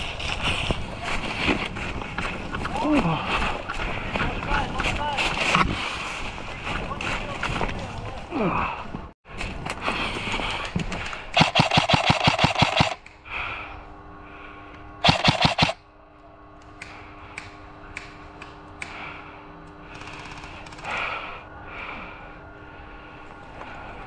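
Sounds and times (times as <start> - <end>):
airsoft rifle firing shots: 11.4 - 13.0, 15.0 - 15.8.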